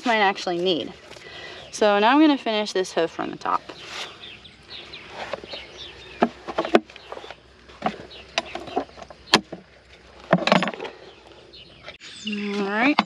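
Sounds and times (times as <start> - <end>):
rasp scraping horse hoof: 5.0 - 11.0.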